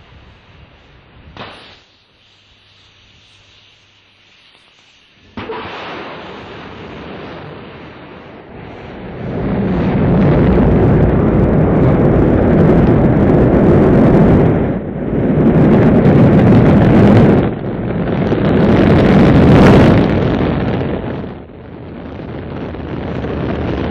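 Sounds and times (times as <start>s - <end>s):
rocket engines roaring: 5.2s - 23.9s.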